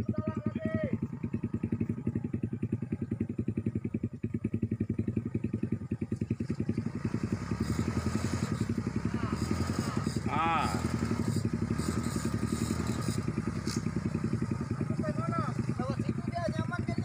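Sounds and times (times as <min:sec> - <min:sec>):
small engine running: 0:06.4 - 0:17.0.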